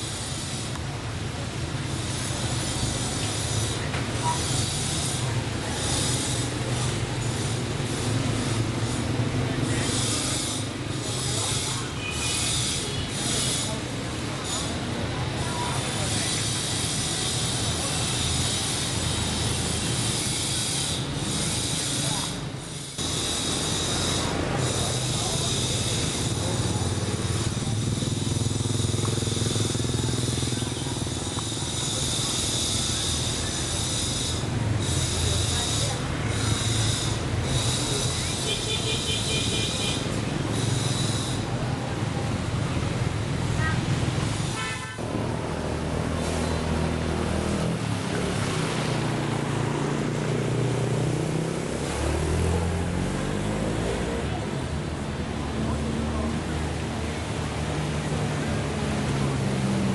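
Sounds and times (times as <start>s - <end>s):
small boat motor running: 0.0s - 53.8s
rush of moving water: 45.0s - 53.8s.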